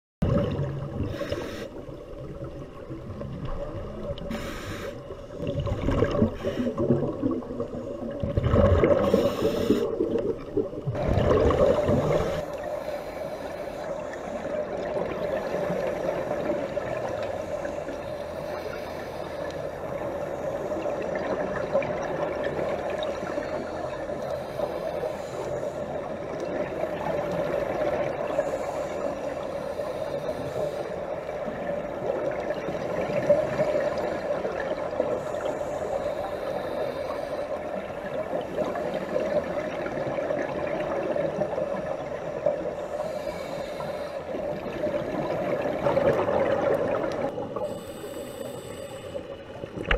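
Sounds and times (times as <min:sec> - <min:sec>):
regulator bubbles gurgling: 0:00.2 - 0:12.8, 0:19.8 - 0:24.3, 0:30.6 - 0:36.8, 0:37.6 - 0:43.2, 0:44.3 - 0:48.4, 0:49.3 - 0:49.9
steady underwater hum: 0:00.2 - 0:49.9.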